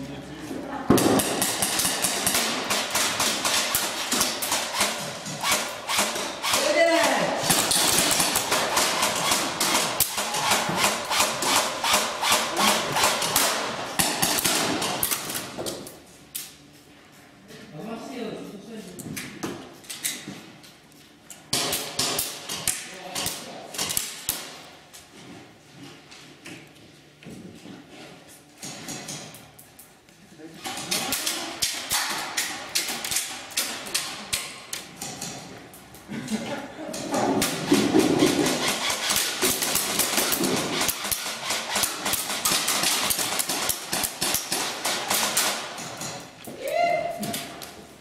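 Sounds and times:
airsoft guns firing: 0:00.9 - 0:15.5, 0:37.3 - 0:45.8
pellets striking barricades: 0:00.9 - 0:15.8, 0:37.3 - 0:46.4.

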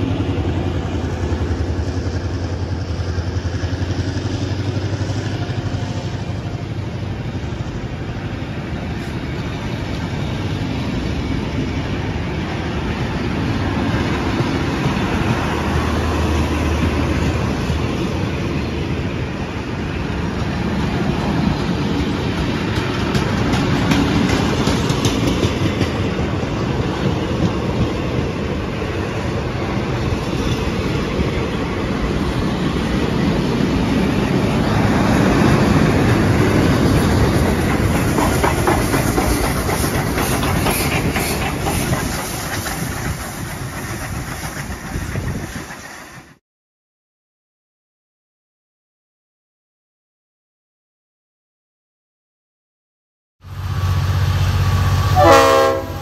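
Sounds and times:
train rumbling past: 0:00.0 - 0:46.4, 0:53.4 - 0:56.0
wheels clicking over rail joints: 0:21.2 - 0:28.5, 0:33.1 - 0:46.3
steam hissing: 0:36.9 - 0:46.4.

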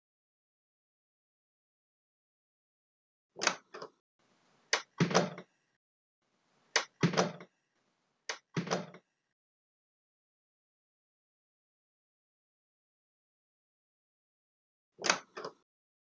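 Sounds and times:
door closing thud: 0:08.6 - 0:08.9.

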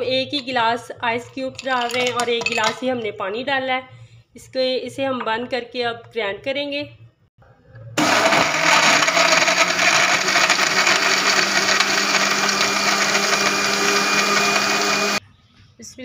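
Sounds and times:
electric blender motor running: 0:08.0 - 0:15.2.

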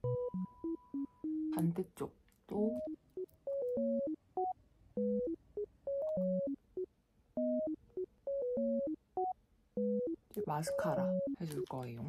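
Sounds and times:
light electronic synth tune: 0:00.0 - 0:01.8, 0:02.6 - 0:12.0.

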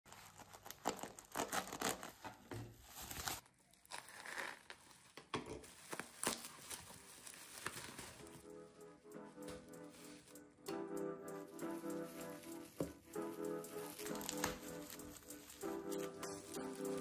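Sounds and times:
knife slitting parcel wrapping: 0:00.1 - 0:05.1, 0:05.7 - 0:08.4, 0:13.2 - 0:17.0
bubble wrap crinkling: 0:00.1 - 0:17.0.

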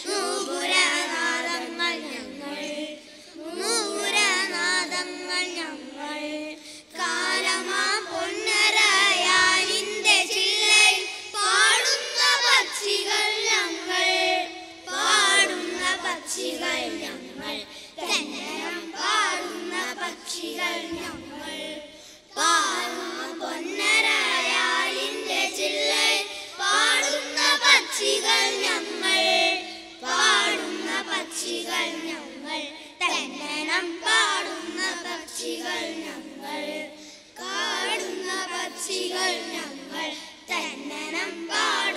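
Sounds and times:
boys singing in unison: 0:00.0 - 0:41.9.

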